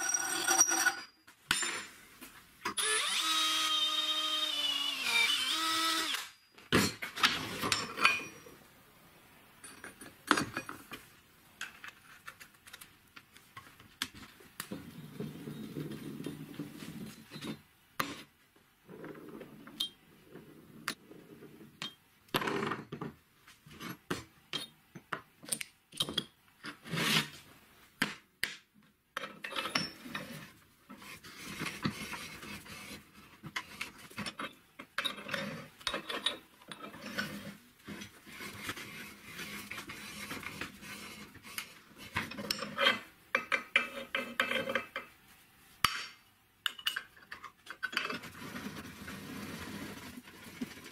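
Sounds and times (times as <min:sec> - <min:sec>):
metal clinks and knocks: 0:06.5 - 0:08.6, 0:09.6 - 0:10.9.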